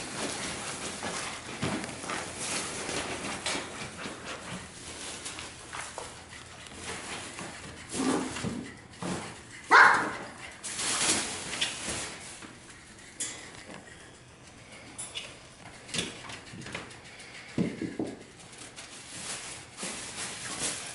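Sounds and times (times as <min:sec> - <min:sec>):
puppies scuffling: 0:00.0 - 0:20.9
puppy sharp high yip: 0:09.7 - 0:10.3
puppy low bark: 0:09.7 - 0:10.4.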